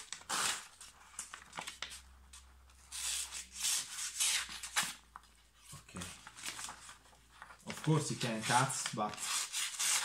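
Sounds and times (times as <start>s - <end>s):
paper rasping and tearing on axe: 9.2s - 10.0s.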